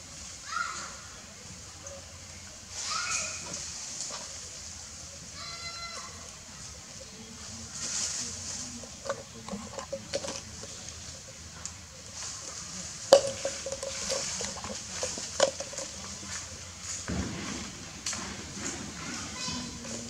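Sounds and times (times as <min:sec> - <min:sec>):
plastic jar knocking on concrete: 0:13.1 - 0:16.0.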